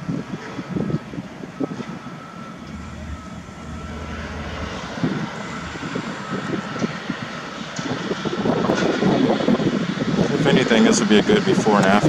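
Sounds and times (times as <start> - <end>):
faint high whine: 2.4 - 8.1
engine drone: 2.4 - 8.7.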